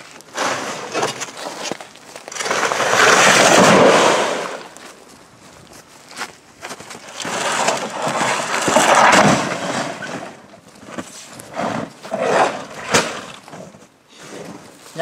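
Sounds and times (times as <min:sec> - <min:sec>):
sheet metal scraping over boards: 0:00.3 - 0:01.6, 0:07.1 - 0:10.4.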